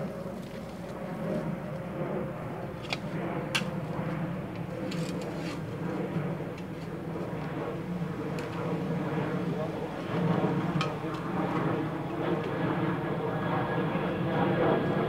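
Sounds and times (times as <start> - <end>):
low mechanical hum: 0.0 - 15.0
shovels digging into soil: 4.8 - 5.8.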